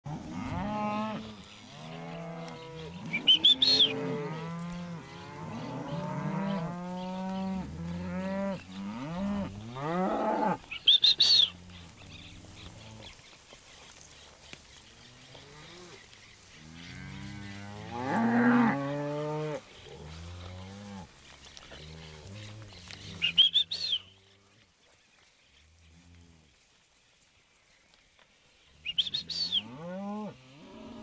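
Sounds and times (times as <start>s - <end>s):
cows and calves mooing: 0.1s - 13.2s, 14.9s - 24.5s, 29.0s - 31.0s.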